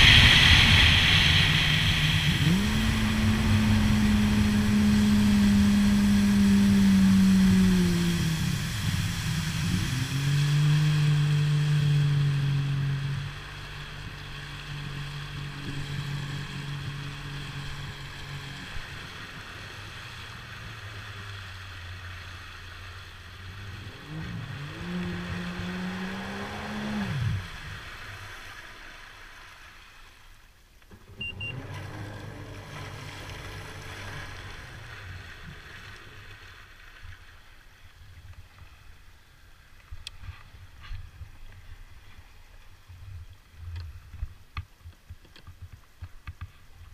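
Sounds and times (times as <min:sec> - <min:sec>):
jet ski engine revving: 0:00.0 - 0:29.6, 0:30.9 - 0:37.0
water rushing and splashing: 0:00.0 - 0:46.9.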